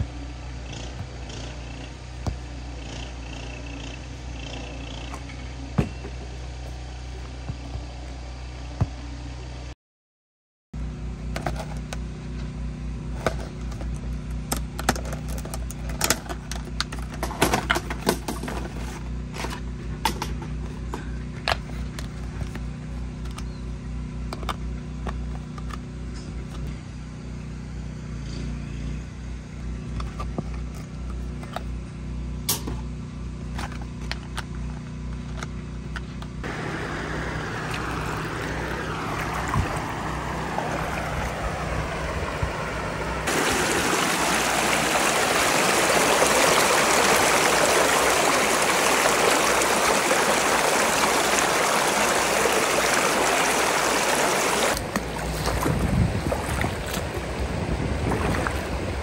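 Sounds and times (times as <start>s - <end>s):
vehicle engine running: 0.0s - 9.7s, 10.8s - 59.0s
rushing water-like hiss: 36.4s - 55.7s.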